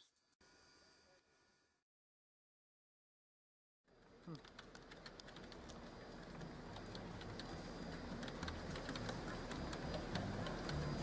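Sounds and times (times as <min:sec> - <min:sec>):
low room rumble: 0:03.9 - 0:11.0.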